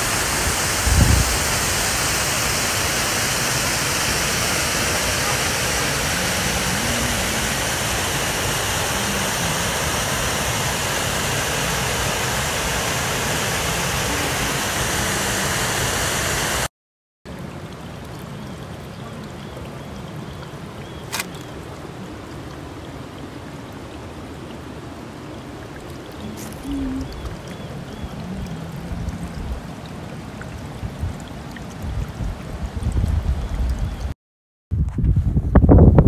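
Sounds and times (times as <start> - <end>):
water running over rocks: 0.0 - 16.7, 17.3 - 34.1
waterfall rushing: 0.0 - 16.7, 20.6 - 31.8
sharp click: 21.1 - 21.5.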